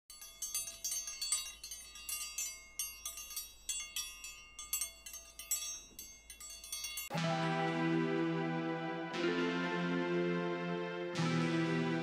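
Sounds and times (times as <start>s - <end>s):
wind chimes tinkling: 0.0s - 7.2s.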